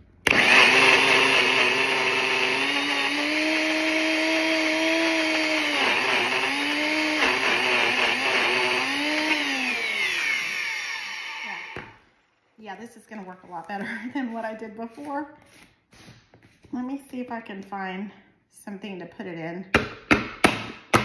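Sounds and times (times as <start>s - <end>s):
blender motor running: 0.2s - 12.0s.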